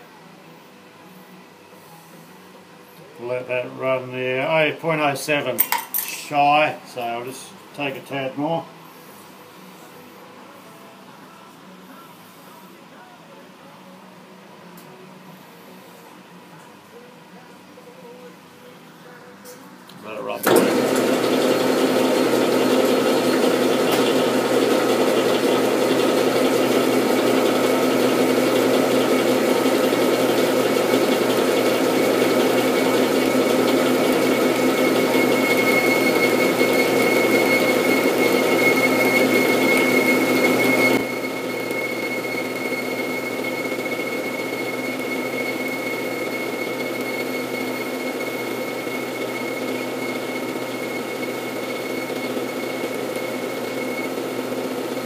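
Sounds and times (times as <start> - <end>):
metal lathe whine: 20.4 - 55.0.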